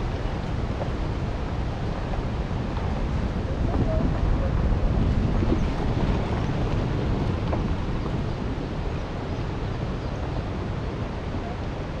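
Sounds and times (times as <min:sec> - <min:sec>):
vehicle driving on gravel: 0:00.0 - 0:10.6
wind on microphone: 0:00.0 - 0:12.0.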